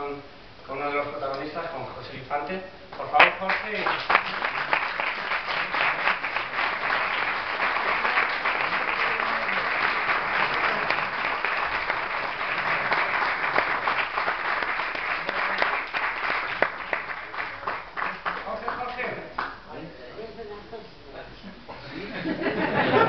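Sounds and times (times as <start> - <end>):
audience applauding: 3.0 - 19.6.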